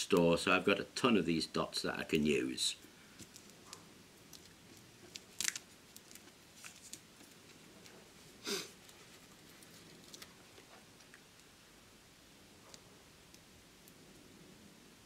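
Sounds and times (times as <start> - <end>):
paper rustling: 4.4 - 7.9.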